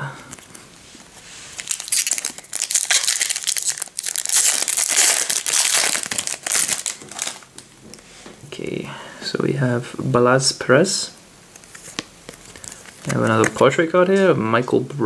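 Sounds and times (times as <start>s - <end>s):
foil wrapper tearing and crinkling: 1.6s - 7.6s.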